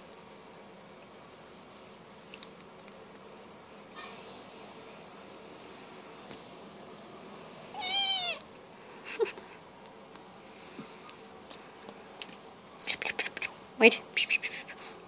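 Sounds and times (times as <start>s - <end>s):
kitten meowing: 7.7s - 8.4s.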